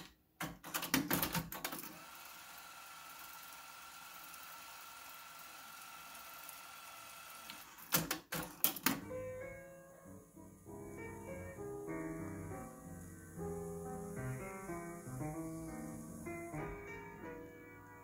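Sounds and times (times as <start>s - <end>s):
cassette rewinding hiss: 1.8s - 8.6s, 10.0s - 17.2s
tape transport clicking and clunking: 7.5s - 9.1s.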